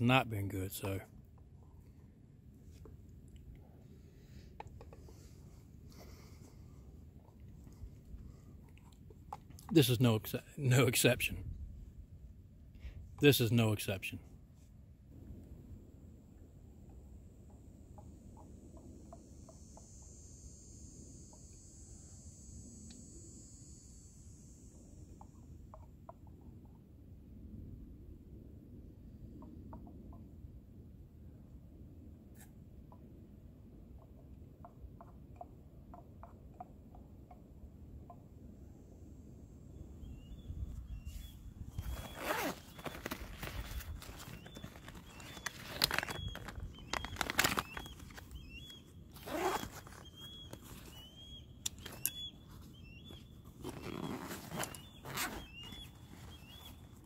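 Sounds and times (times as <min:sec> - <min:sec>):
small bird chirps: 0:40.0 - 0:57.0
fabric and plastic rustling: 0:41.8 - 0:48.3, 0:53.6 - 0:56.4.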